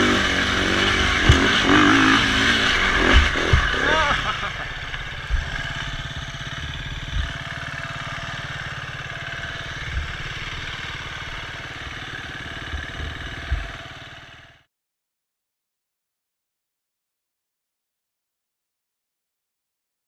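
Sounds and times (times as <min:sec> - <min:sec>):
motorcycle engine idling: 0:00.0 - 0:14.7.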